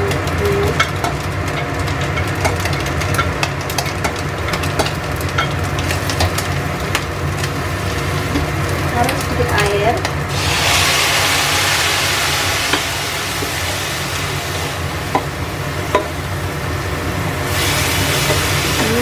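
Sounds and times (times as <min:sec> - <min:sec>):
food sizzling in frying pan: 0:00.0 - 0:19.0
water hissing in hot oil: 0:00.0 - 0:19.0
wooden spatula knocking pan: 0:15.9 - 0:16.2.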